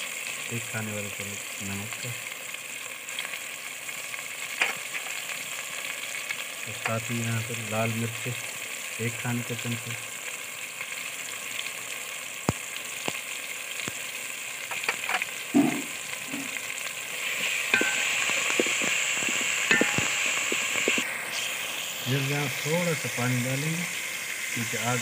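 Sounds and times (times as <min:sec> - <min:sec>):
food sizzling in a pot: 0:00.0 - 0:25.0
ladle scraping metal pot: 0:17.2 - 0:21.0.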